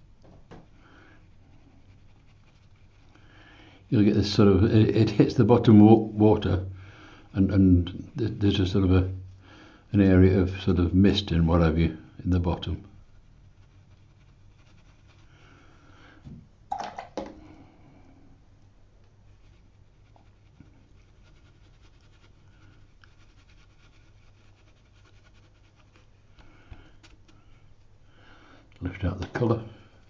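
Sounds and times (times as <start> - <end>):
brush scratching on paper: 0.6 - 16.0, 19.0 - 28.2
person breathing: 0.7 - 1.3, 3.1 - 3.9, 6.7 - 7.3, 9.4 - 9.9, 15.3 - 16.3, 17.2 - 18.4, 26.3 - 28.8.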